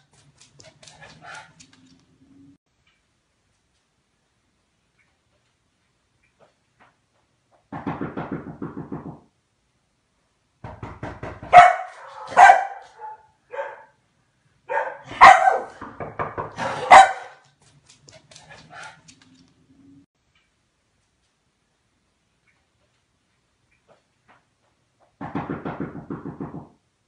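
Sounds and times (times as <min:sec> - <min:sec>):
dog barking loudly: 0:11.4 - 0:14.0, 0:14.7 - 0:15.8, 0:16.6 - 0:17.4.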